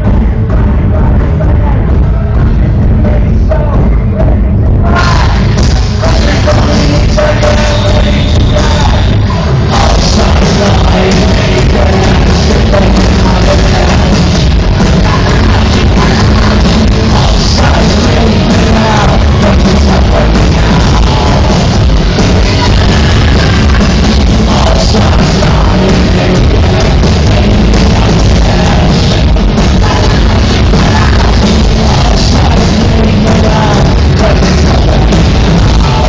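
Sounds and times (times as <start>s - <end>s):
heavy bass: 0.0s - 36.0s
live electro-industrial band music: 0.0s - 36.0s
singing vocals: 0.0s - 36.0s.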